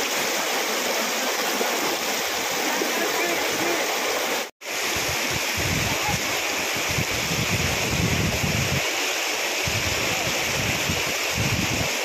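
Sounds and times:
river rushing: 0.0s - 12.0s
wind buffeting microphone: 4.9s - 8.9s, 9.6s - 12.0s.

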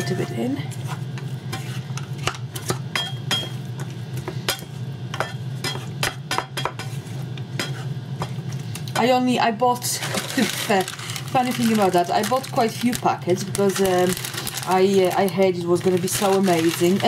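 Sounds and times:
steady low hum: 0.0s - 17.0s
wooden spatula scraping frying pan: 0.7s - 2.8s.

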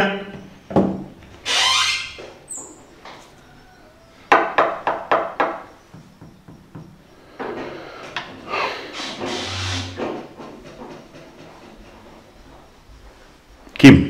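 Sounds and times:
knocking on wooden door: 4.3s - 7.0s.

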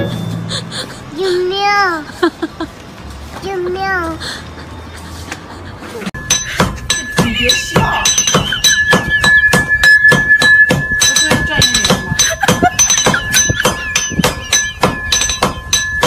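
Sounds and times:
high ringing tone: 0.0s - 0.5s, 6.2s - 16.0s.

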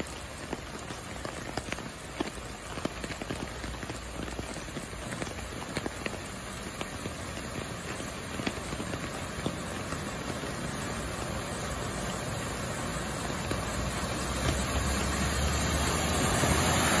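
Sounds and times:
car splashing through water: 0.0s - 17.0s
heavy rain pattering: 0.0s - 17.0s.

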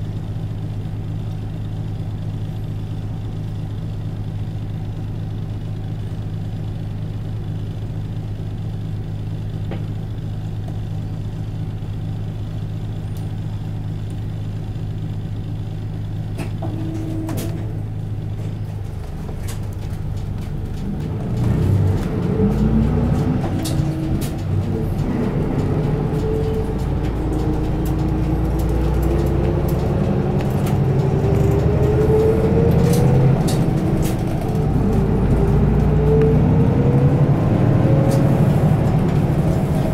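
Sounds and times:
bus diesel engine: 0.0s - 39.9s
rising drivetrain whine: 9.5s - 39.9s.

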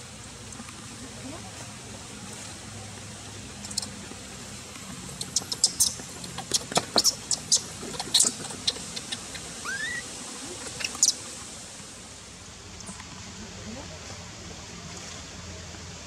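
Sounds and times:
short rising squeak: 9.6s - 10.1s.

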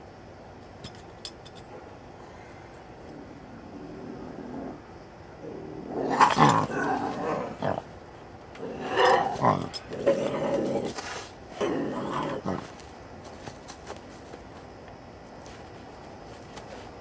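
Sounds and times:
bobcat growling: 3.0s - 7.9s, 8.6s - 12.8s.

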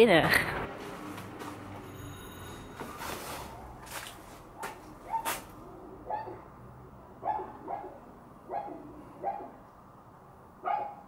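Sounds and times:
dog barking behind door: 4.6s - 5.4s, 6.0s - 6.5s, 7.2s - 9.6s, 10.6s - 11.0s.

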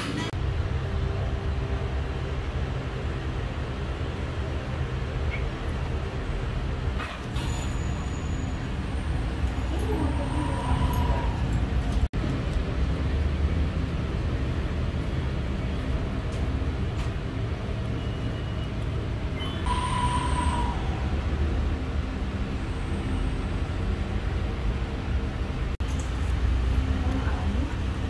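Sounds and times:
road traffic rumble: 0.0s - 28.0s
short high-pitched tone: 19.4s - 21.3s.

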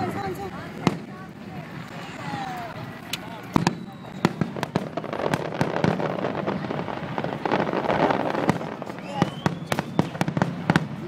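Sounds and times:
fireworks bursting with sharp bangs: 0.0s - 11.0s
fireworks crackle: 0.0s - 11.0s
rising firework whistle: 1.8s - 10.8s.

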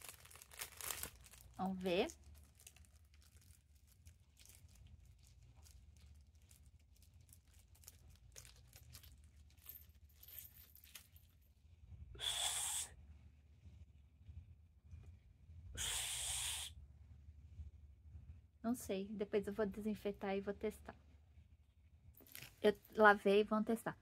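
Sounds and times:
plastic packet crinkling: 0.0s - 9.9s.

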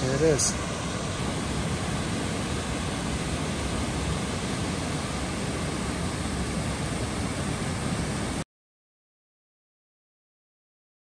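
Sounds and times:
waterfall rushing: 0.0s - 8.4s.

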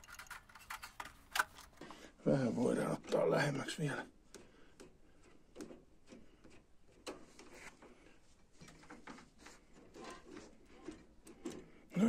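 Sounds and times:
hands handling things: 0.0s - 2.0s.

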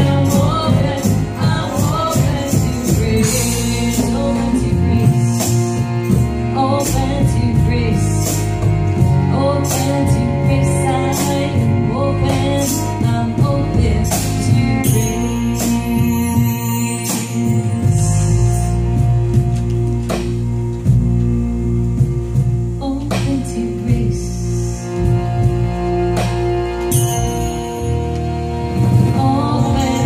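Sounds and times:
drums: 0.0s - 30.0s
jingling hand percussion: 26.9s - 28.4s.

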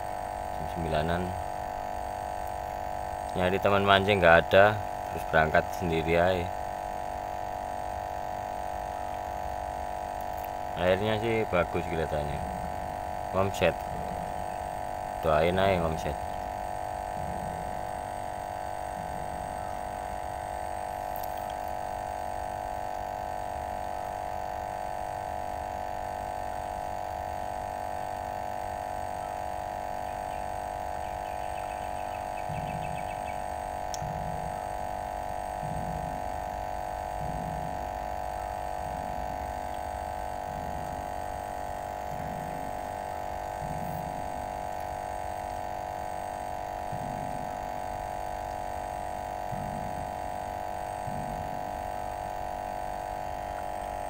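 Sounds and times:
steady even hum: 0.0s - 54.0s
faint low pulses: 31.8s - 52.4s.

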